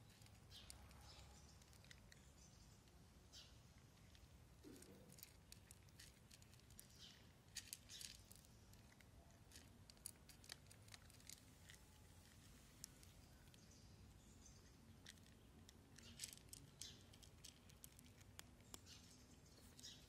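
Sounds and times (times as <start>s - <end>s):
cats crunching dry kibble: 0.0s - 3.0s, 3.8s - 13.6s, 14.6s - 20.0s.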